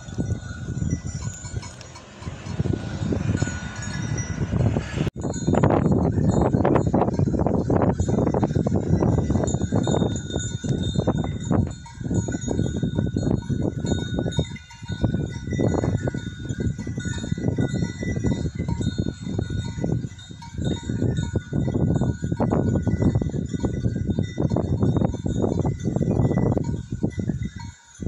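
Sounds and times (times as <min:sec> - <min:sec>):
low rumbling noise: 0:00.0 - 0:23.5
animal bells clinking: 0:00.0 - 0:28.0.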